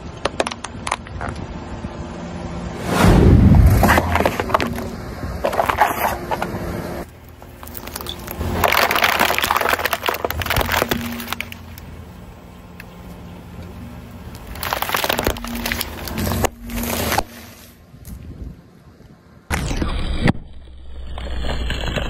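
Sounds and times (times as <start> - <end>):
tyre crushing plastic packaging: 7.6 - 11.8, 14.4 - 17.4.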